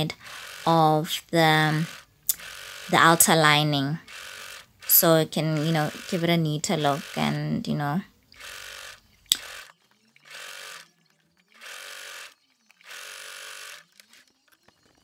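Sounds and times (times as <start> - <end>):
sewing machine stitching: 0.0 - 15.0
sharp click: 9.3 - 9.5.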